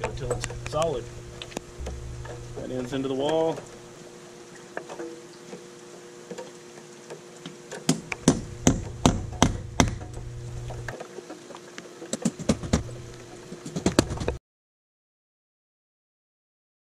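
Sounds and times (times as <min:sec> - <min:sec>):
hammer striking metal punch: 0:07.9 - 0:10.2.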